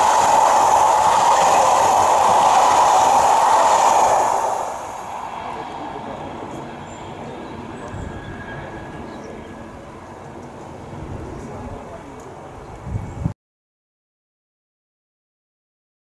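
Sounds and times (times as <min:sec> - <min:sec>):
train coaches rushing past: 0:00.0 - 0:12.6
distant train rumble: 0:00.0 - 0:13.3.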